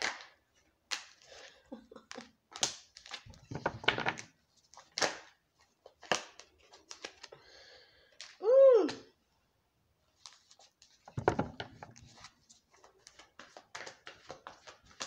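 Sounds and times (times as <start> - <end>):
cards being shuffled: 2.1 - 7.3, 10.2 - 15.0.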